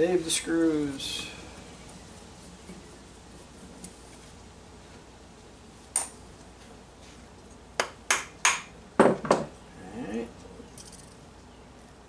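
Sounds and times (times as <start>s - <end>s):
small metal parts clinking: 10.8s - 11.2s.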